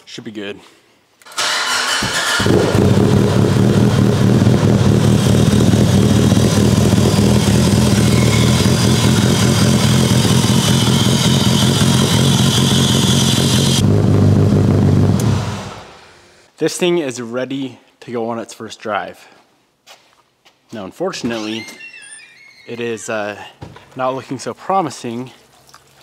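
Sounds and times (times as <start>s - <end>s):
car engine starting and idling: 1.3s - 16.1s.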